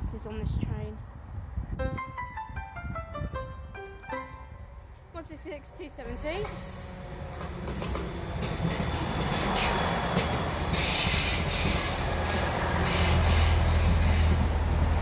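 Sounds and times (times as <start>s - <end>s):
train rolling rumble: 0.0s - 15.0s
diesel engine hum: 4.2s - 15.0s
wheels and brakes squealing: 8.9s - 14.5s.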